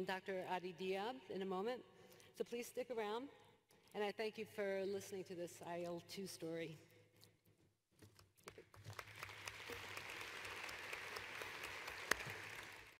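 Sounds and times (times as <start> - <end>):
sharp loud clap: 8.5 - 12.9
audience applauding: 8.8 - 13.0.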